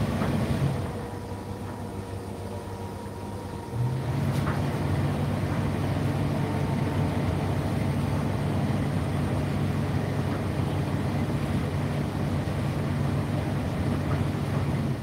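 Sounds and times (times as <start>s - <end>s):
tumble dryer humming: 0.0s - 15.0s.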